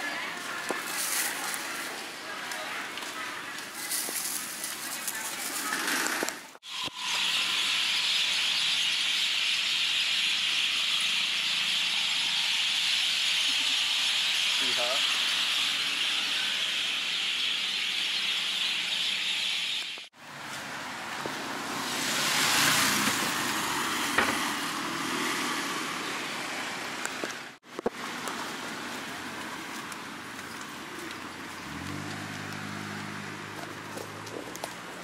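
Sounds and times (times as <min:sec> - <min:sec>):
vehicle swishing past on wet road: 0:20.3 - 0:27.0, 0:31.6 - 0:34.3
rain falling: 0:25.5 - 0:35.0.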